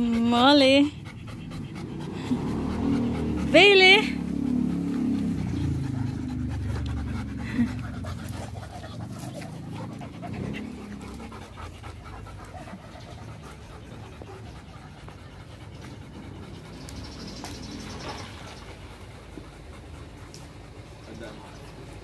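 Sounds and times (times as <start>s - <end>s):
dogs panting: 0.0s - 22.0s.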